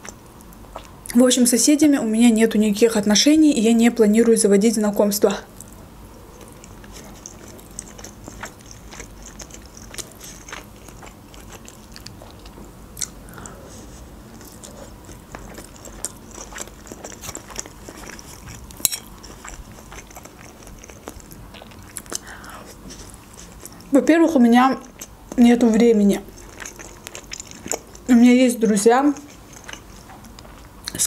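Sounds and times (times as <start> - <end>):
chewing food close up: 0.0 - 1.2, 5.5 - 31.0
wet mouth sounds: 5.6 - 23.9, 24.8 - 31.0.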